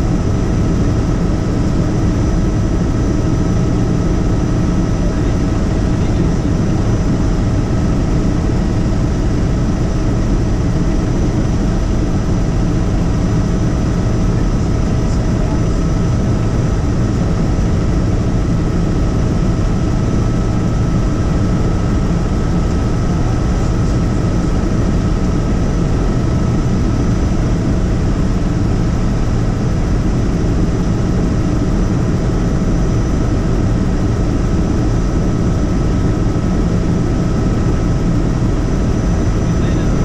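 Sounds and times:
helicopter drone: 0.0s - 40.0s.

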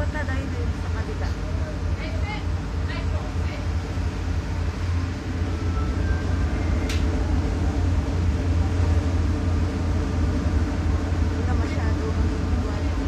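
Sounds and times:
ferry engine low drone: 0.0s - 13.0s
brief sharp click: 6.9s - 7.1s.

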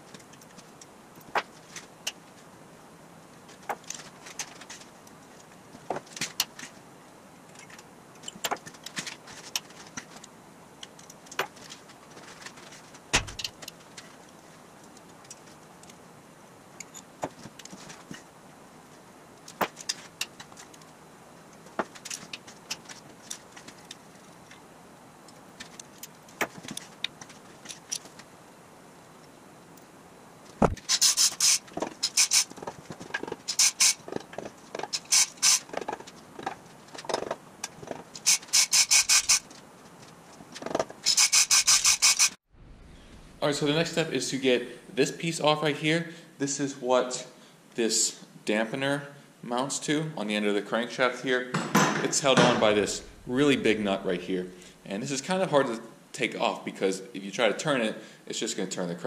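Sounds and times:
hand ratchet clicking: 30.8s - 32.5s, 33.5s - 34.0s, 34.9s - 35.7s, 38.2s - 39.5s, 41.0s - 42.4s.

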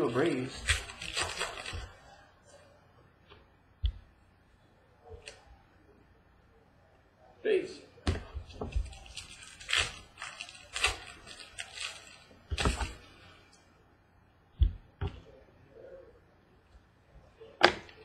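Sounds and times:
cards rustling and flicking: 0.0s - 2.1s, 8.5s - 13.1s.

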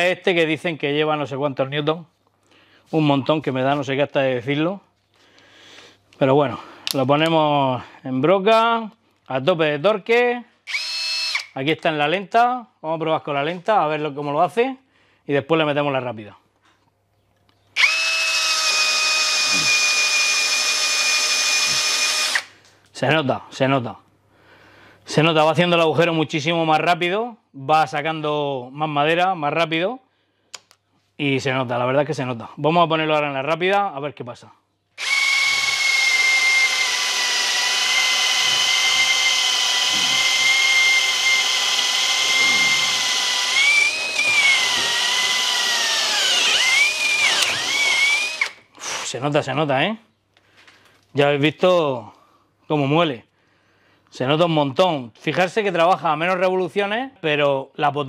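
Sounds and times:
drill bit chewing wood: 10.7s - 11.5s, 17.8s - 22.5s, 35.0s - 49.1s
drill motor whine: 10.7s - 11.5s, 17.8s - 22.5s, 35.0s - 49.1s.

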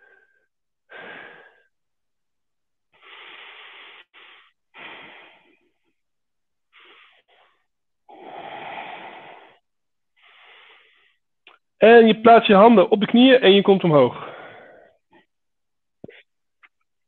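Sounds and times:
man breathing heavily: 0.0s - 1.8s, 2.9s - 6.0s, 6.7s - 11.3s, 14.2s - 15.3s.

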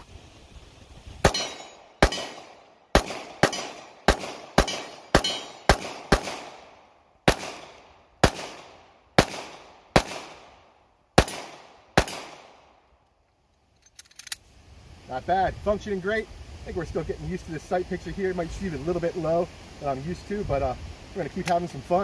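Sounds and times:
pistol shots: 1.2s - 10.6s, 11.2s - 12.6s.

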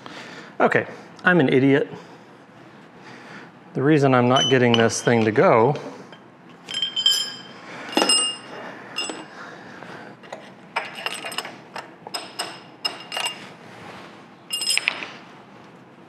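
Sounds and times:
metal parts clinking: 6.6s - 9.3s, 10.8s - 13.5s, 14.5s - 15.1s.

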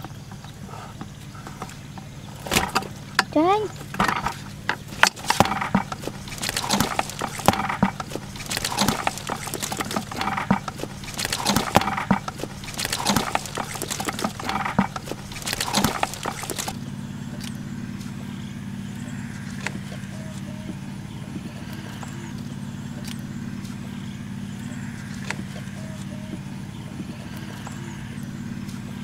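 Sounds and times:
steady low hum: 0.0s - 29.0s
bamboo trap slats rattling: 1.4s - 16.8s.

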